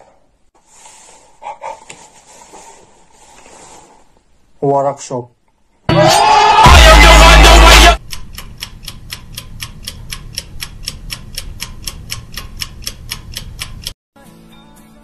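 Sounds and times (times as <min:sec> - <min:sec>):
distorted shouting: 0:05.9 - 0:08.0
clock ticking sound effect: 0:06.6 - 0:14.0.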